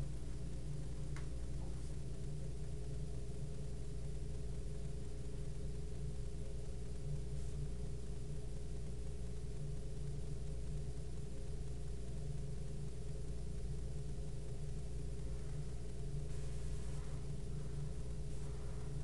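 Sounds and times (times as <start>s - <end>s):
low machine hum: 0.0s - 19.0s
faint hiss: 15.2s - 19.0s.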